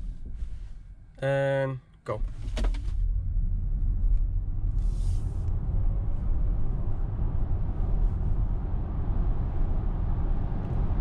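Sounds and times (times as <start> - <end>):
road and tyre rumble: 0.0 - 1.2, 2.1 - 11.0
wind noise: 2.3 - 11.0.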